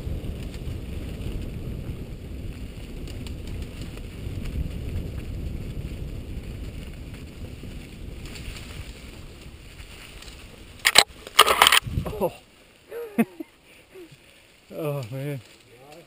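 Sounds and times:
wind on microphone: 0.0 - 12.4
loud crackle: 0.0 - 13.1, 13.9 - 16.0
bike tyres rumbling on dirt trail: 0.0 - 16.0.

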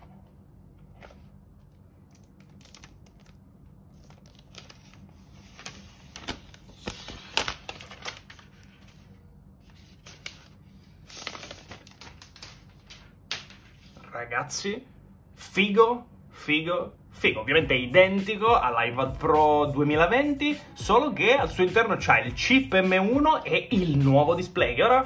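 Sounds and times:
plastic wrap crinkling: 1.6 - 9.1, 10.0 - 13.2.

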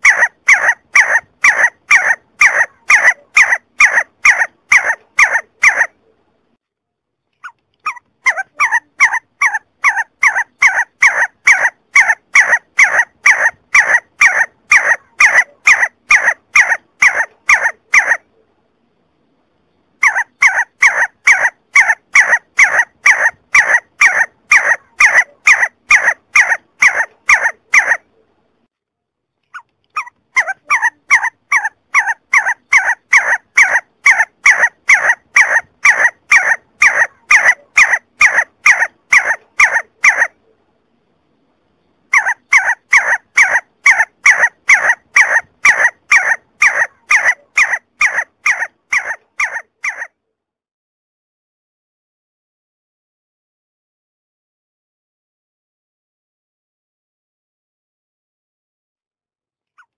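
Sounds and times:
partridge calling whistled notes: 0.0 - 5.9, 7.4 - 18.2, 20.0 - 28.0, 29.5 - 40.4, 42.1 - 50.1.

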